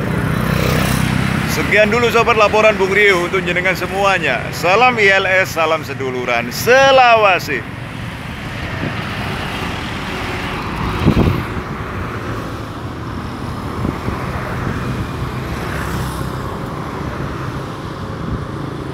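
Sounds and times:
passing road traffic: 0.0 - 18.9.

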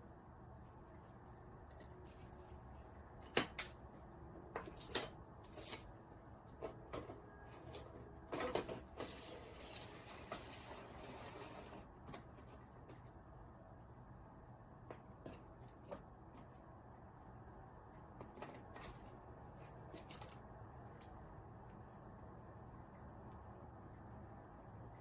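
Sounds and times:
parts rustling and scraping: 0.4 - 3.8, 4.5 - 13.1, 14.9 - 16.6, 18.2 - 21.2.

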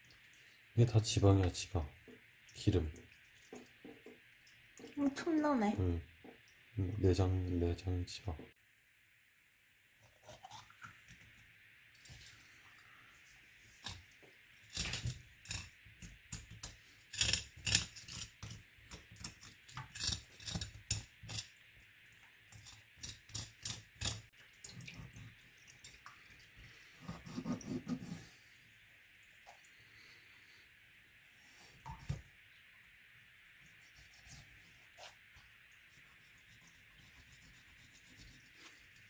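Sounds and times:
knife scraping fish: 14.7 - 21.5, 22.5 - 24.3, 27.0 - 28.2, 33.9 - 35.2
rubbing sound: 27.0 - 28.2.

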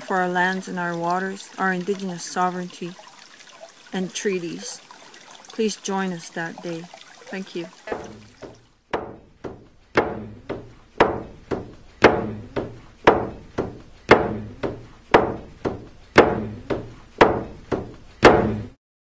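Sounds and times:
drum beating steadily: 9.0 - 18.7.

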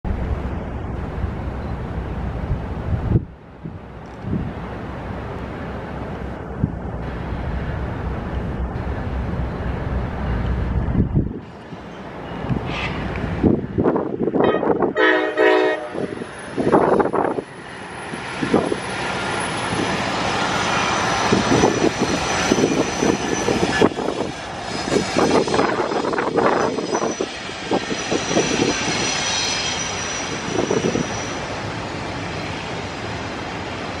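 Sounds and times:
diesel locomotives running past: 0.1 - 34.0
train horn blast: 14.4 - 16.3
train wheels rumbling and clattering: 15.9 - 34.0
high wheel squeal: 17.4 - 31.8.

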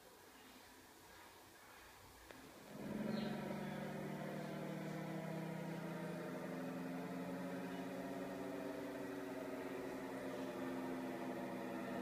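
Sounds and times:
synthesizer drone: 2.6 - 12.0.

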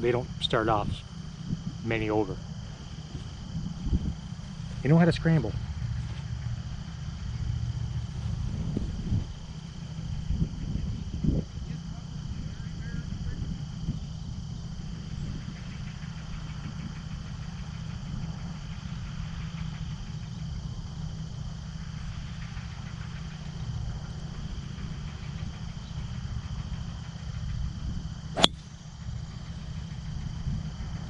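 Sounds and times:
steady low rumble: 0.0 - 11.5
golf club striking ball: 28.4 - 28.7.

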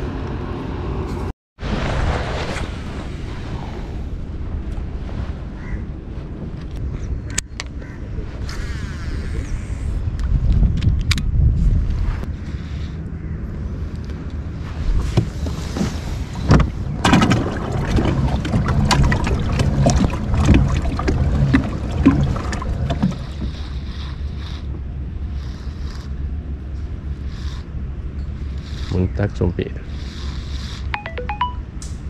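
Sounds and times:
low rumble: 0.0 - 12.4
wind on microphone: 1.6 - 24.0
knocks and splashy clicks: 15.2 - 23.6.

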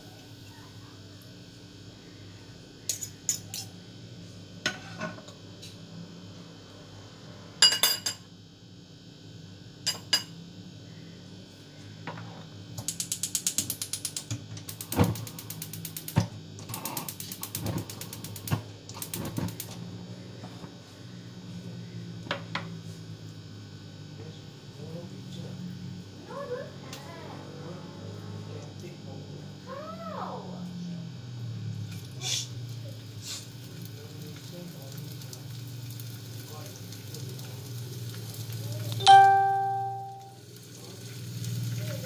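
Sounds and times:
steady low hum: 0.0 - 36.0
kitchen knocks and clinks: 9.9 - 10.3.

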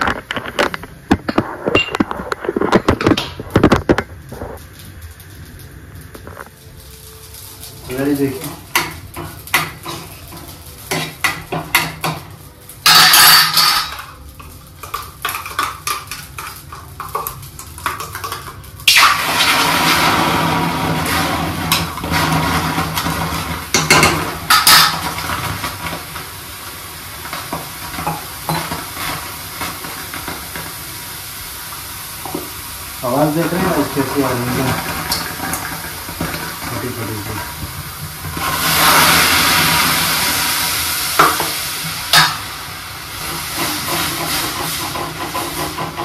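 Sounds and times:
water hissing in hot pan: 0.0 - 46.0
steel spoon scraping a pan: 12.8 - 14.2
short loud sizzle: 18.7 - 46.0.

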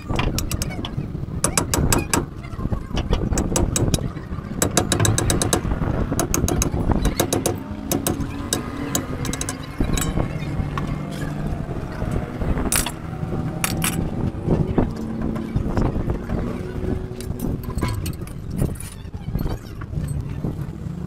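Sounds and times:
hammer striking steel: 4.6 - 10.3.

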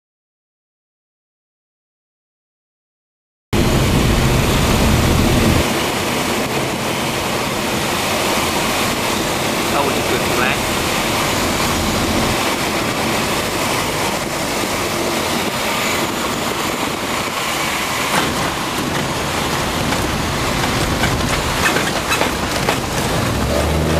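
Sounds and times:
aircraft engine and rushing air: 3.6 - 23.9
wheels rolling over grass: 4.1 - 23.9.

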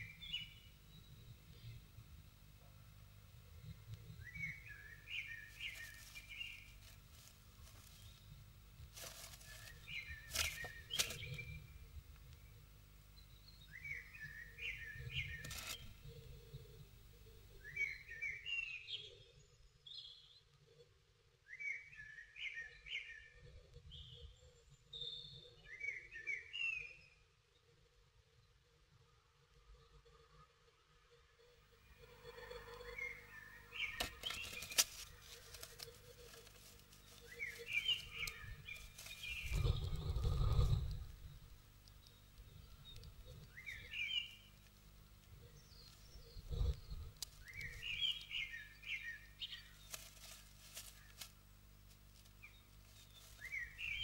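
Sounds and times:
low background rumble: 0.0 - 18.1, 31.5 - 54.0
songbird chirping: 0.0 - 54.0
bird rustling in nest: 5.4 - 11.7, 15.2 - 16.0, 33.8 - 43.8, 49.6 - 54.0
bird wing flutters: 8.9 - 11.4, 33.9 - 41.0, 49.8 - 51.4
claws clicking on wood: 9.0 - 11.4, 34.0 - 41.0
high chirping bird calls: 32.1 - 44.6, 45.3 - 50.0, 52.4 - 54.0.

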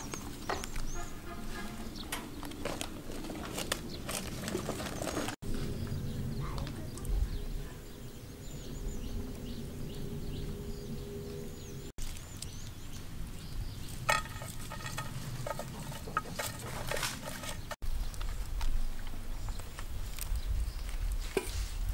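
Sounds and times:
cooking pot and utensils clattering: 14.1 - 17.8.

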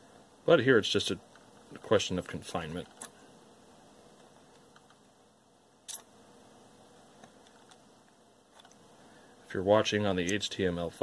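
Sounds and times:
sharp click: 5.9 - 6.1.

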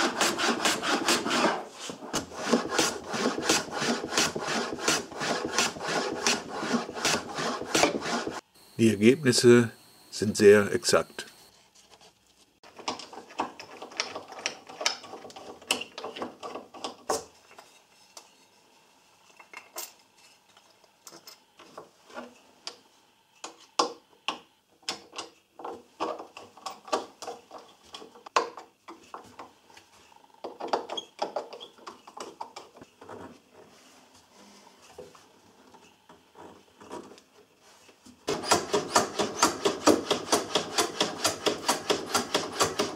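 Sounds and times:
screwdriver working in wood: 0.0 - 8.4, 38.3 - 42.9.

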